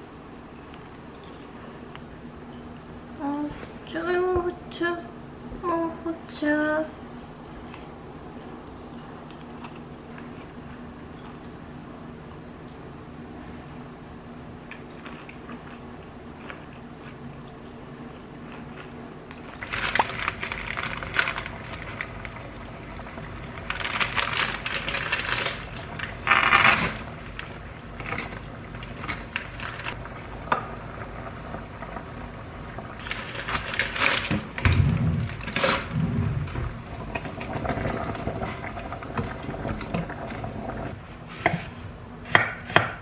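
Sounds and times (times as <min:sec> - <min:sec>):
faint steady hum: 0:00.0 - 0:43.0
plastic packet rustling: 0:19.4 - 0:22.4, 0:23.4 - 0:30.0, 0:33.0 - 0:34.6.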